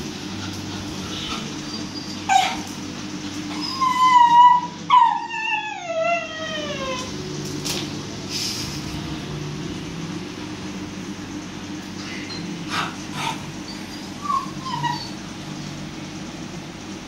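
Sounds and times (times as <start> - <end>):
dog yelping and whining: 0.4 - 7.1, 12.2 - 15.8.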